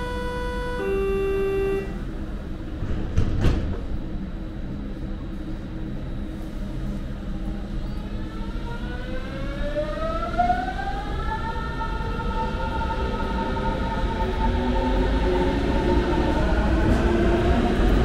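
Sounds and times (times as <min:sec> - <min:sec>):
pitched tone: 0:00.0 - 0:02.0
train running noise: 0:00.0 - 0:09.6, 0:11.5 - 0:18.0.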